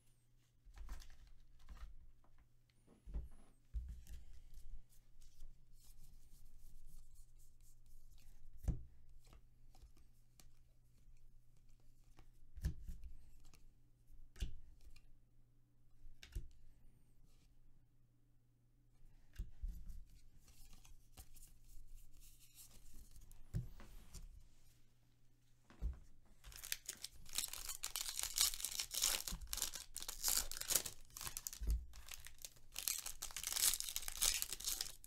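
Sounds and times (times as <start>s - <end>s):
cards sliding and rustling: 26.5s - 35.0s.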